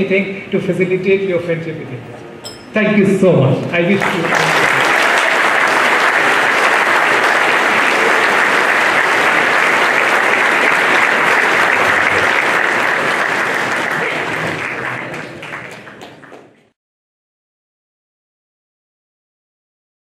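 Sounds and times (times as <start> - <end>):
audience applauding: 3.9 - 16.8.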